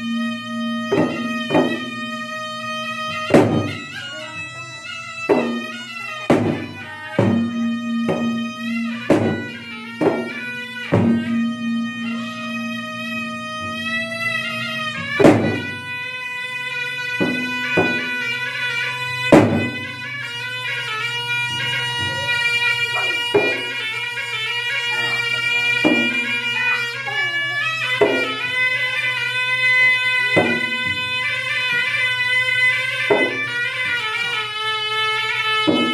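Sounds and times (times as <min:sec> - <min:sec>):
reedy shawm wailing melody: 0:00.0 - 0:35.9
barrel drums struck by hand: 0:00.8 - 0:02.1, 0:03.0 - 0:04.5, 0:05.2 - 0:16.0, 0:17.1 - 0:20.2, 0:23.0 - 0:24.0, 0:25.8 - 0:26.9, 0:27.9 - 0:28.6, 0:29.9 - 0:32.3, 0:33.0 - 0:34.4, 0:35.7 - 0:35.9.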